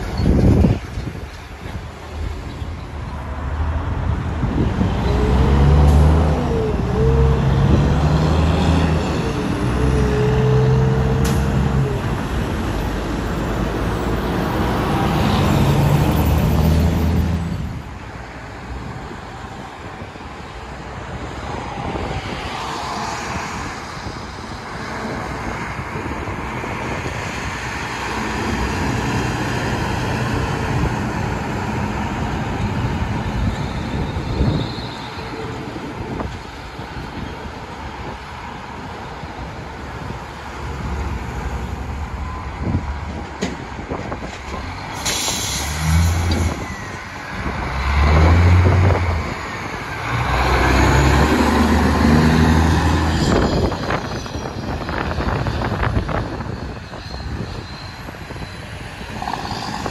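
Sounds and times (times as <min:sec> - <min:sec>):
passing road traffic: 0:00.0 - 0:59.9
truck diesel engine shifting gears: 0:04.7 - 0:17.5, 0:44.0 - 0:53.5.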